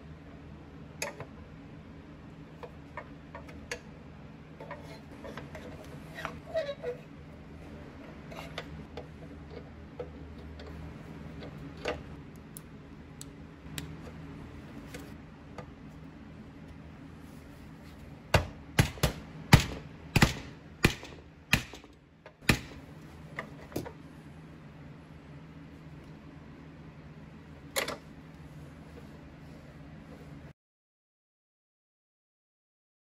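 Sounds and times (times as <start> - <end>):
loud sharp metal knocks: 18.4 - 22.8.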